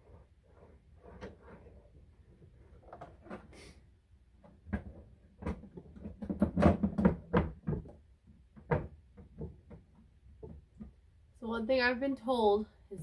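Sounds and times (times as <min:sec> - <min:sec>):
plastic lid knocks and clicks: 0:04.5 - 0:10.9.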